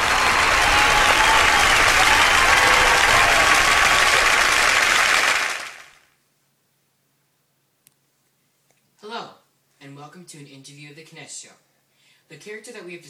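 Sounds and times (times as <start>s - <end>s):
audience applause: 0.0s - 6.1s.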